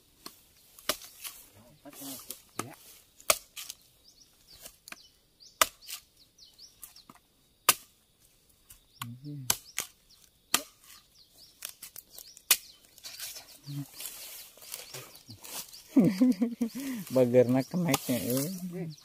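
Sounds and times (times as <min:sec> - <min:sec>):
machete chopping coconut: 0:00.8 - 0:01.4, 0:02.6 - 0:03.8, 0:05.6 - 0:06.0, 0:07.7 - 0:07.9, 0:09.0 - 0:11.0, 0:11.6 - 0:12.8.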